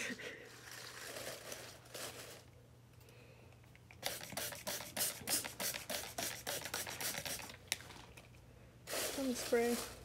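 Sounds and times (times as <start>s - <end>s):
spray bottle squirts: 4.0s - 7.6s
dry leaves rustling: 8.9s - 10.0s.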